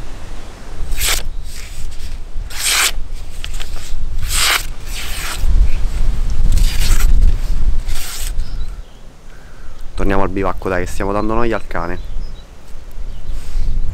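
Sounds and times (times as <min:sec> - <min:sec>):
knife slicing through paper: 0:00.9 - 0:05.6, 0:06.4 - 0:08.4.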